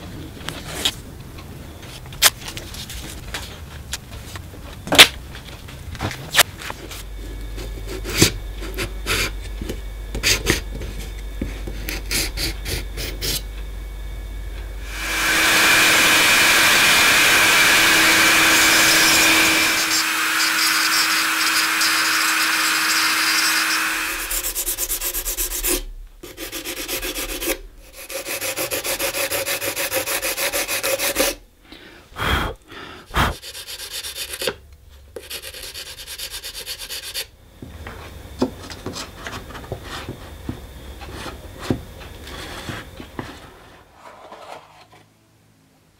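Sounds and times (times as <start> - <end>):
rotary tool grinding with whine: 14.8 - 31.4
hand rubbing strokes: 23.7 - 31.4.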